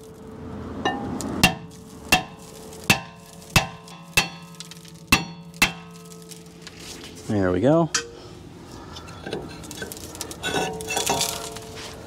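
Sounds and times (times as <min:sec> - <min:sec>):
hammer clanging on metal rotor: 0:00.9 - 0:06.2.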